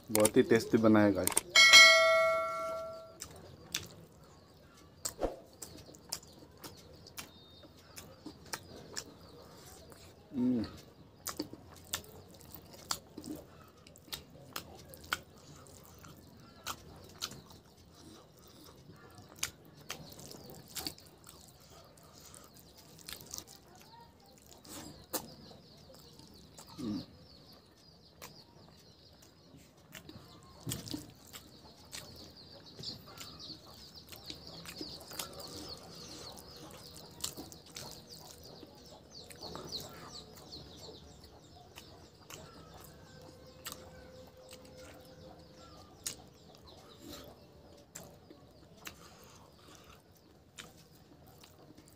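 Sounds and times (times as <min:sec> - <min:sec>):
birds chirping faintly: 0:00.0 - 0:51.9
wet chewing: 0:02.9 - 0:51.9
sharp lip smacks: 0:05.0 - 0:07.3.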